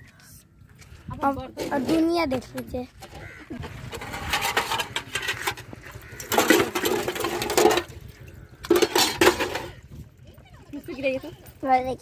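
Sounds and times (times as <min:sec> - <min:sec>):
utensils clattering: 0:03.1 - 0:09.8.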